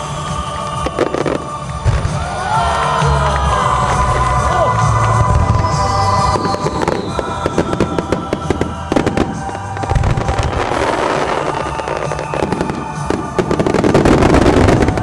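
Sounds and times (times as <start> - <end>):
fireworks bursting with crackling: 0.0 - 15.0.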